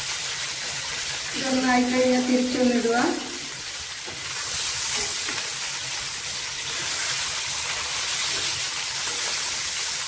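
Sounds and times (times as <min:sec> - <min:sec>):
chicken sizzling in a pan: 0:00.0 - 0:10.0
spoon turning food in pan: 0:03.5 - 0:10.0.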